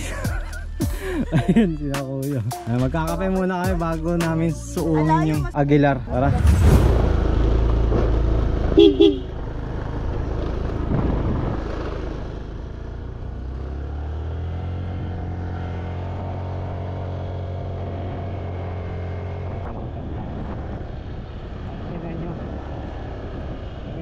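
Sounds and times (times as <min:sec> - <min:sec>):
wind rumble: 0:05.6 - 0:13.6, 0:14.5 - 0:24.0
motor scooter engine: 0:07.3 - 0:19.6
horn double beep: 0:08.8 - 0:09.3.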